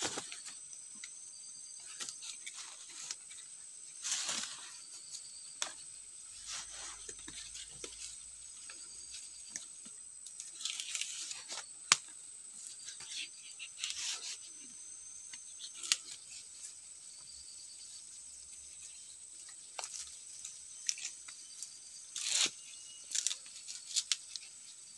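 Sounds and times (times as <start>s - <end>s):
leaf strip rustling and crinkling: 0.0s - 1.1s, 1.8s - 17.0s, 17.8s - 24.9s
small crackles: 6.4s - 14.6s, 15.3s - 16.8s, 18.5s - 24.8s.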